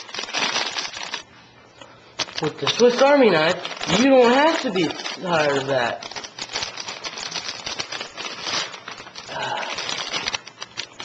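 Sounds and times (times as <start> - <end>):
plastic bag crinkling: 0.0 - 1.4, 2.2 - 11.0.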